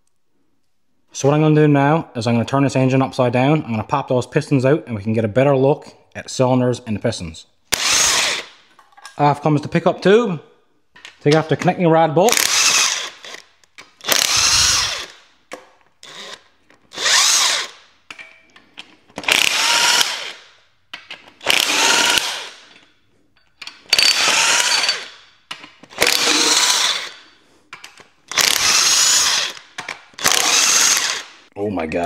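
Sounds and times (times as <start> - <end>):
cordless impact wrench bursts: 7.7 - 8.6, 12.3 - 15.2, 16.0 - 17.9, 19.2 - 20.6, 21.4 - 22.7, 23.9 - 25.3, 25.9 - 27.3, 28.3 - 31.5.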